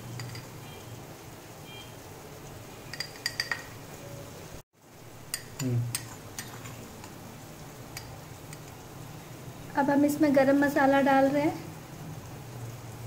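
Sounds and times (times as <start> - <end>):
steel spoon clinking on bowl: 0.2 - 0.5, 2.9 - 3.8.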